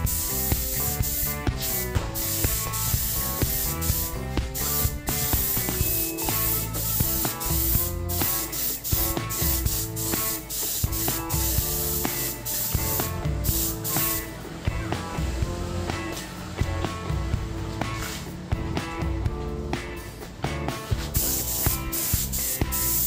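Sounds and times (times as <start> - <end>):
spray gun hissing: 0.0 - 14.4, 21.0 - 23.0
background music: 0.0 - 23.0.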